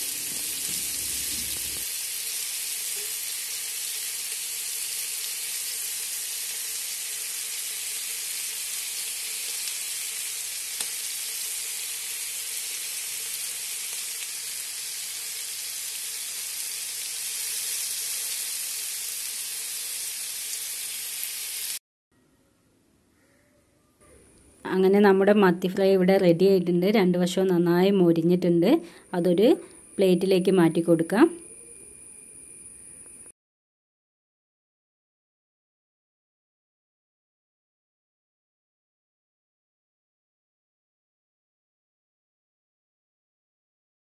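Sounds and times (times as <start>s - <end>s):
fish frying in oil: 0.0s - 21.8s.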